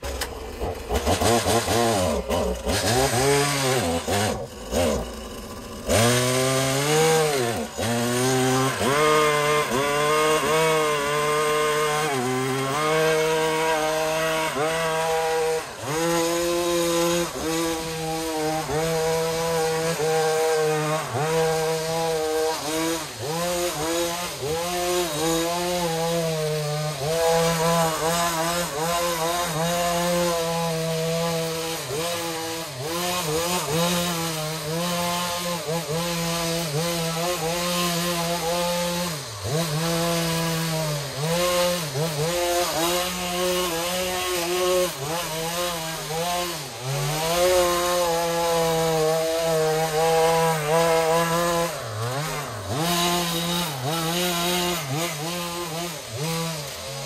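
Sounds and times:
hedge trimmer engine running: 0:00.0 - 0:57.0.

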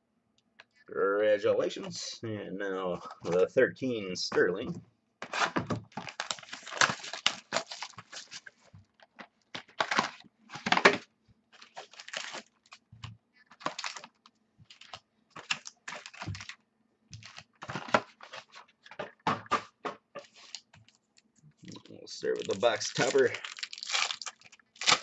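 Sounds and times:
shrink wrap crinkling and tearing: 0:05.3 - 0:12.8, 0:13.4 - 0:16.6, 0:20.3 - 0:25.0.

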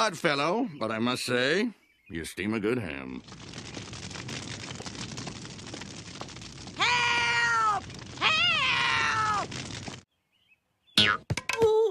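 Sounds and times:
fire crackling: 0:02.9 - 0:10.1.

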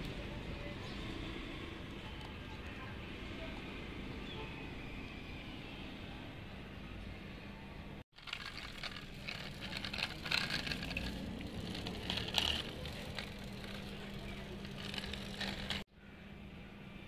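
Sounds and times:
toy wheels rolling on concrete: 0:08.1 - 0:15.9.

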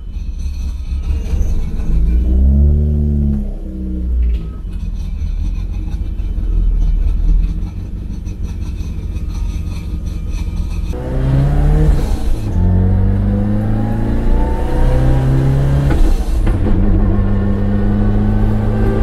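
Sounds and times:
car engine revving in cabin: 0:01.0 - 0:04.8, 0:10.9 - 0:19.0.

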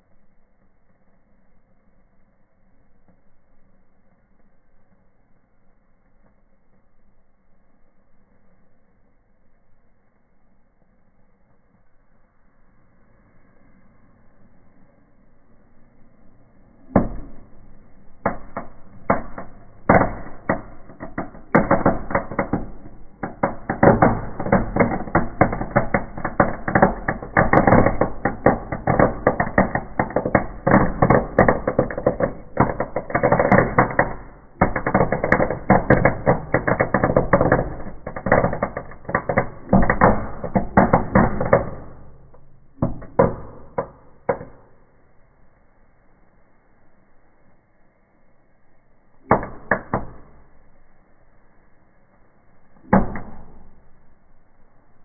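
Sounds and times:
firework crackling pops: 0:16.7 - 0:45.0, 0:49.2 - 0:50.8, 0:52.8 - 0:54.3.

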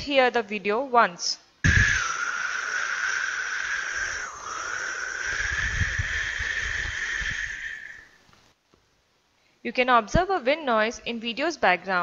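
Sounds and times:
wind noise on microphone: 0:01.6 - 0:08.2.

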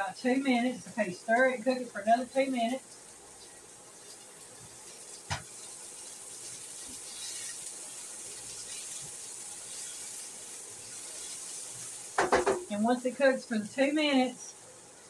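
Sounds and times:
food sizzling in frying pan: 0:00.0 - 0:15.0
spatula stirring: 0:01.0 - 0:12.8
single knock: 0:12.2 - 0:12.7.

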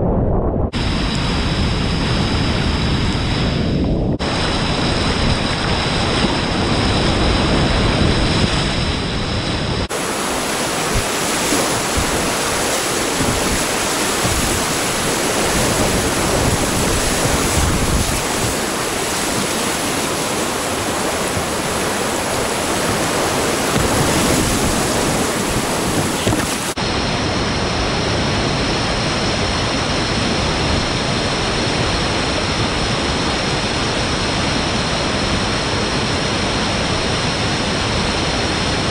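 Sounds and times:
rushing whitewater rapids: 0:09.9 - 0:27.1.

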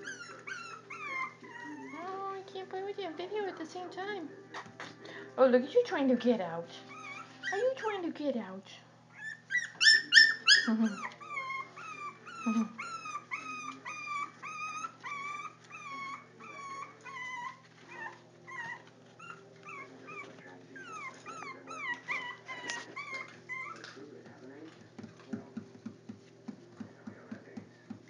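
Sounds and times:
puppies whimpering and yelping: 0:00.0 - 0:02.4, 0:06.8 - 0:08.0, 0:09.1 - 0:24.0.

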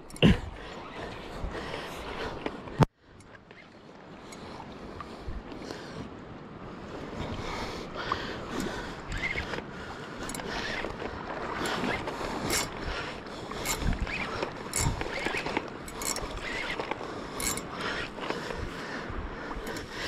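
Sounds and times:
fishing reel whirring: 0:09.1 - 0:18.3
sharp reel clicks: 0:13.6 - 0:18.2.

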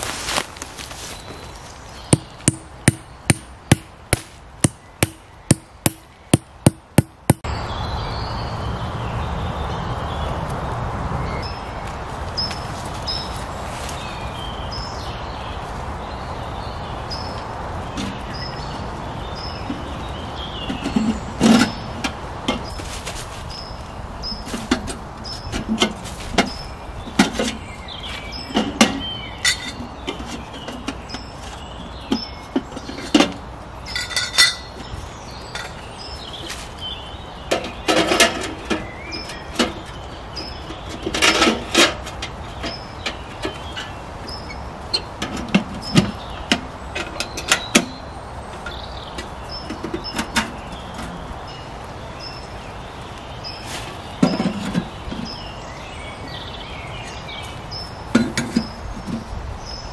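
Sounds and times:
objects being handled: 0:00.0 - 0:07.4.

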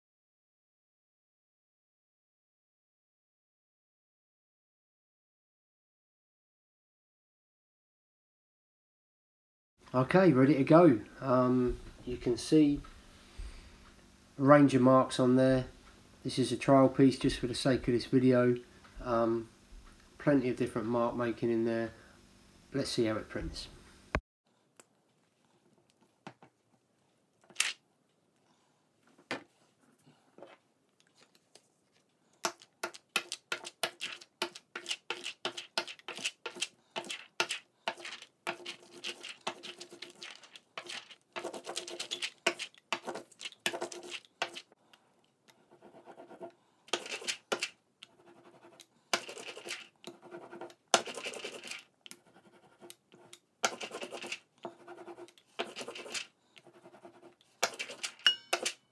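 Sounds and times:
rubber roller rolling ink: 0:33.2 - 0:44.7.

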